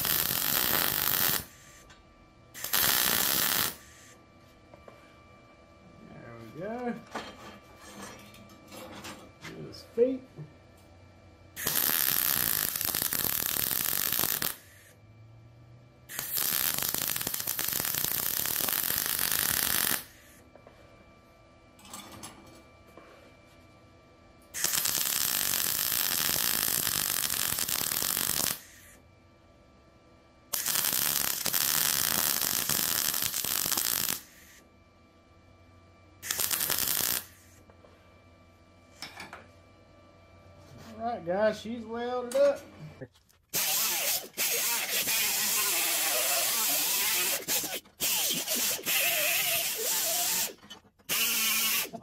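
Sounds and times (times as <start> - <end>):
welding arc crackling on steel: 0.0 - 1.9, 2.6 - 4.2, 11.6 - 14.9, 16.1 - 20.4, 24.5 - 29.0, 30.5 - 34.6, 36.2 - 37.6, 43.5 - 52.0.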